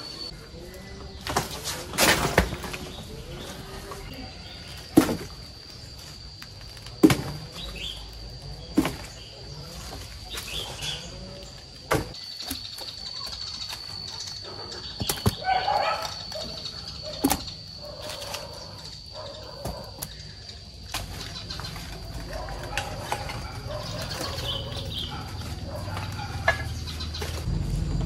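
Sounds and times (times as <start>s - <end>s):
farmyard animal calls: 0.0s - 27.5s
birds chirping: 0.0s - 28.0s.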